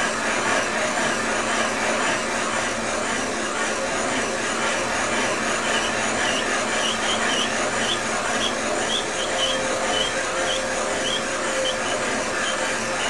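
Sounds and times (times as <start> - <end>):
machine whirring: 0.0 - 13.0
light squeak: 5.7 - 12.7.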